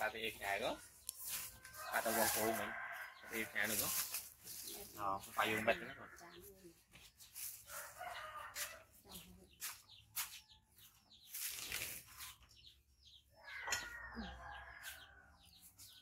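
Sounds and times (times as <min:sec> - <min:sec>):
chickens clucking: 0:00.0 - 0:16.0.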